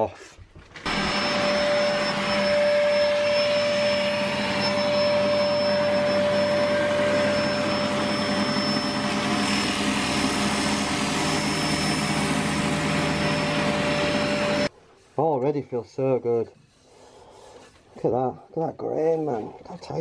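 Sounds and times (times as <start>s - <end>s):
wood lathe whining: 0.8s - 14.7s
sandpaper hissing on spinning wood: 16.6s - 18.2s.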